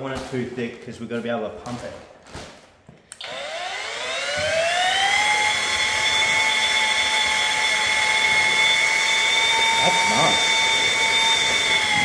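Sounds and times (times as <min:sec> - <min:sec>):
electric paddle mixer whine: 0:03.2 - 0:12.0.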